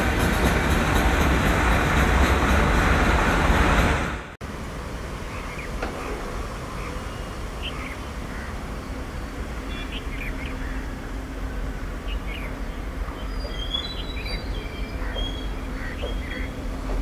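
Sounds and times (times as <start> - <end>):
distant electric locomotive rumble: 0.0 - 17.0
small birds chirping: 6.7 - 16.6.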